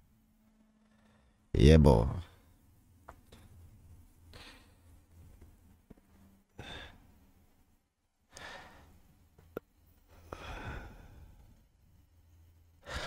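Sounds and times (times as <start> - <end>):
person breathing softly: 4.3 - 5.0, 10.1 - 11.6.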